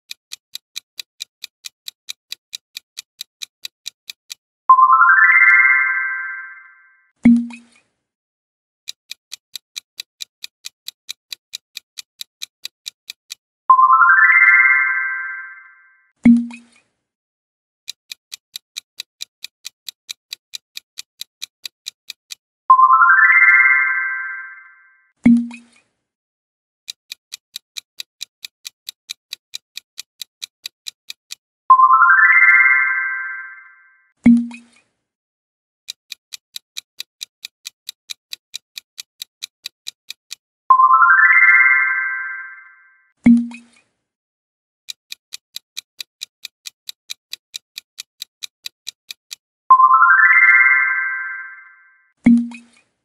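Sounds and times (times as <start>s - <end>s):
clock-like ticking: 0.0s - 7.8s, 8.9s - 16.8s, 17.9s - 25.8s, 26.9s - 34.8s, 35.9s - 43.8s, 44.9s - 52.8s
bright rising chime: 4.8s - 6.9s, 13.8s - 15.8s, 22.8s - 24.8s, 31.7s - 33.8s, 40.7s - 42.9s, 49.7s - 51.9s.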